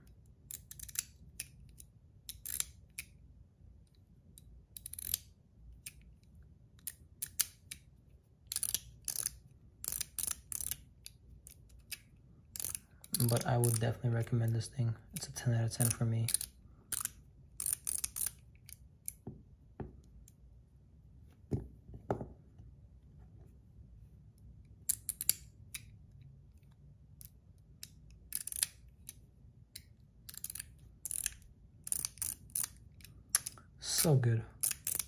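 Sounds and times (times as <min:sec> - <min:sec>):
metal fidget toy clicking: 0:08.5 - 0:13.9, 0:29.8 - 0:33.6, 0:34.6 - 0:35.0.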